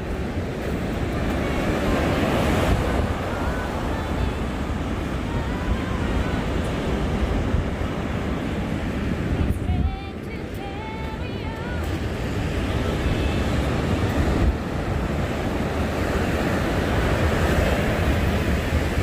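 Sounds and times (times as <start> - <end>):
ocean surf on sandy beach: 0.0 - 19.0
wind buffeting microphone: 0.0 - 19.0.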